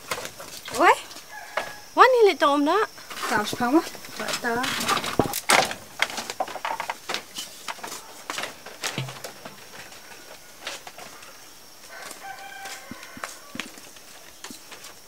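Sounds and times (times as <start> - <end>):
light footsteps: 7.2 - 11.2
metal pot knocking: 9.0 - 9.3.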